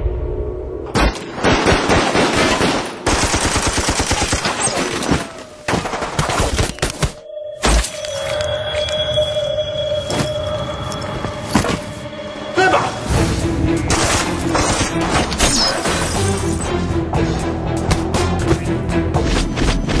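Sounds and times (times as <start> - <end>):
high ringing tone: 7.2 - 12.8.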